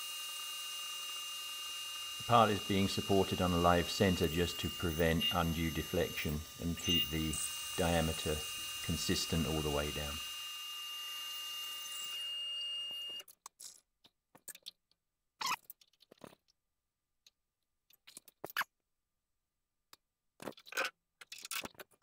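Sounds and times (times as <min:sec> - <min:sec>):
metal lathe whining: 0:00.0 - 0:13.2.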